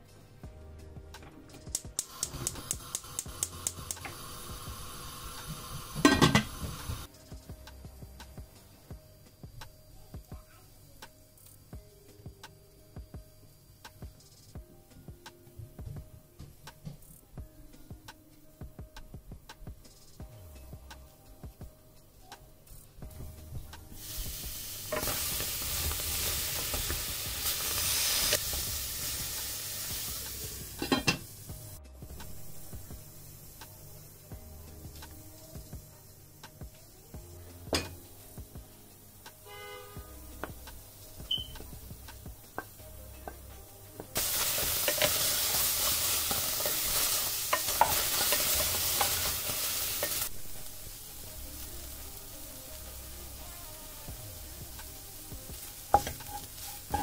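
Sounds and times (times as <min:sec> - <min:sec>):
okra sizzling in pot: 0:01.7 - 0:14.5, 0:22.7 - 0:57.0
metal lid clattering on pot: 0:06.0 - 0:06.5, 0:30.8 - 0:31.2.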